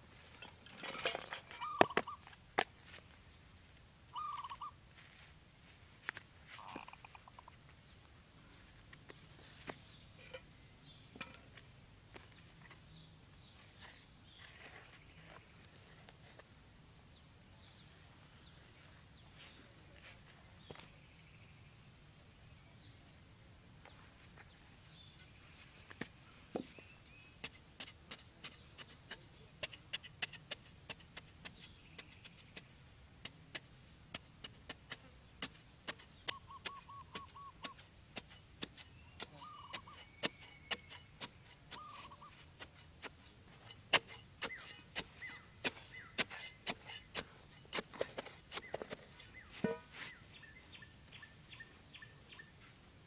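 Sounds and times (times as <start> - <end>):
faint bird calls: 1.5 - 3.0, 4.1 - 5.1, 6.4 - 10.4, 35.4 - 43.8.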